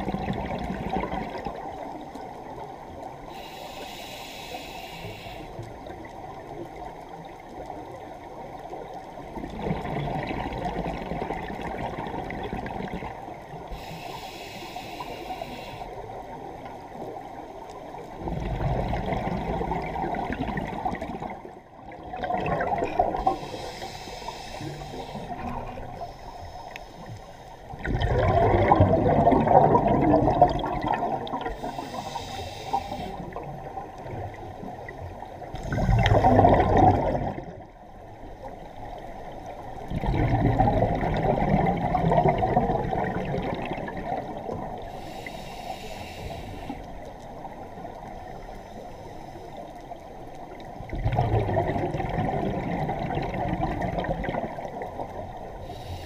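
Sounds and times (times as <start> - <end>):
hissing regulator inhales: 3.3 - 5.6, 13.7 - 16.0, 23.2 - 27.6, 31.5 - 33.4, 44.8 - 47.0, 48.5 - 49.7, 55.6 - 56.0
bubbling exhales: 22.0 - 26.0, 27.8 - 33.1, 35.5 - 37.6, 39.9 - 44.4, 50.9 - 54.6.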